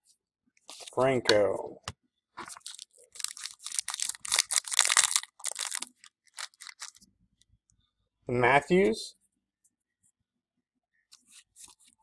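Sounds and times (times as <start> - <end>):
cards rustling and scraping: 2.4 - 7.0.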